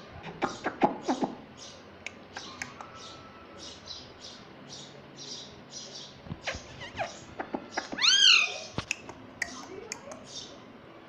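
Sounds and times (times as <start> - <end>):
loud parakeet call: 6.0 - 8.8
parakeet squeaks: 6.4 - 8.8.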